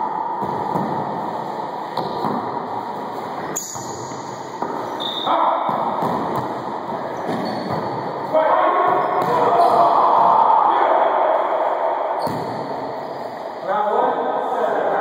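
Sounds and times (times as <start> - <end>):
ball hits in echoing court: 0.3 - 1.3, 1.9 - 2.8, 3.5 - 8.1, 8.8 - 10.5, 12.2 - 12.8.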